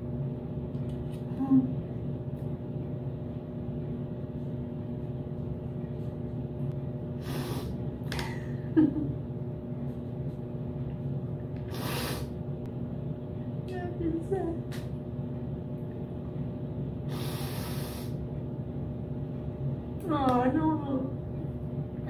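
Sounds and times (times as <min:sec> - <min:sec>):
steady low hum: 0:00.0 - 0:22.0
woman sniffing: 0:07.2 - 0:07.8, 0:11.7 - 0:12.3, 0:17.1 - 0:18.2.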